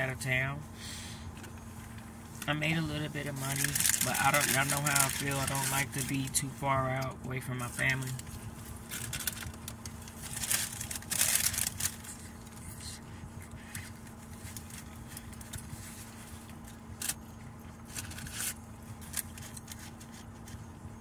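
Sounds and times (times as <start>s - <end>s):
car cabin hum: 0.0s - 21.0s
paper tissue rustling: 3.2s - 6.3s, 7.6s - 12.6s.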